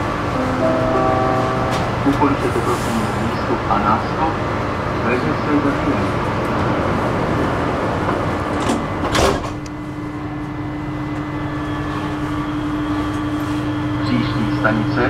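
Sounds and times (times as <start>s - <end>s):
electrical hum: 0.0s - 15.0s
metro car running rumble: 0.0s - 15.0s.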